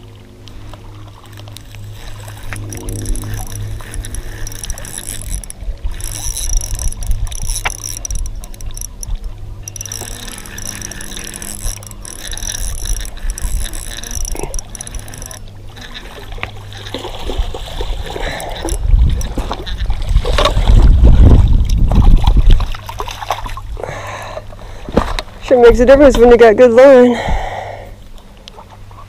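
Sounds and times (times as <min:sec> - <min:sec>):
low microphone rumble: 0:00.0 - 0:22.7
water splashing: 0:00.0 - 0:23.8
fishing reel cranking: 0:01.2 - 0:23.4.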